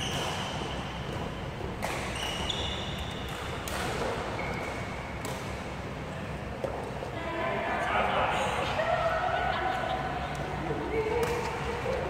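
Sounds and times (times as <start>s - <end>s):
shoes squeaking on court floor: 0.0s - 5.6s
racket striking shuttlecock: 0.0s - 5.8s.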